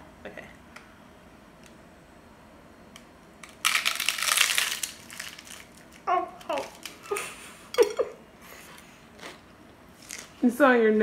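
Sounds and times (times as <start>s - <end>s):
crunch of biting a taco: 3.4s - 6.0s.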